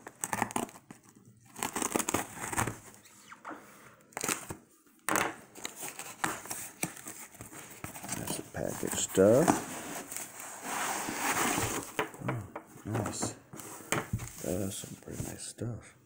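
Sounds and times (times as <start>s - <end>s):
cardboard scraping tearing and rustling: 0.0s - 3.1s, 5.6s - 12.0s.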